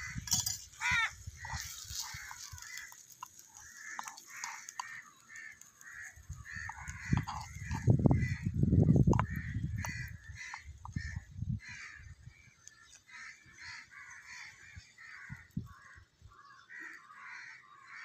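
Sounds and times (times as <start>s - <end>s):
crows cawing: 0.0s - 18.0s
spoon knocking in clay pot: 6.6s - 8.4s, 9.0s - 10.1s.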